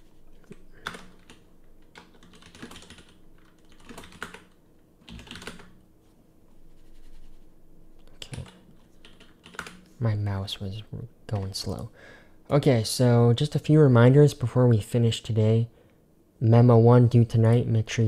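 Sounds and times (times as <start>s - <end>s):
computer keyboard typing: 0.4s - 5.8s, 8.2s - 9.9s.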